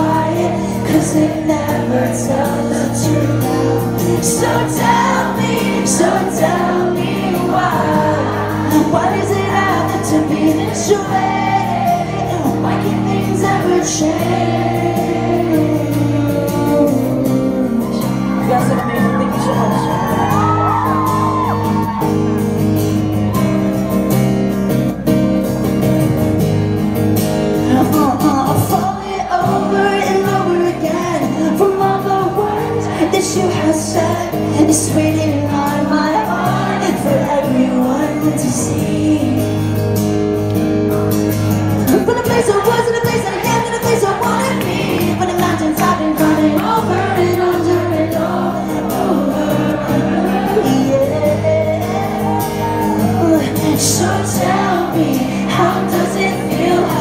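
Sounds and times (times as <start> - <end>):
person singing: 0.0 - 22.1, 27.6 - 40.0, 41.9 - 57.0
acoustic guitar: 0.0 - 57.0
audience shouts: 18.4 - 22.6, 51.8 - 53.4.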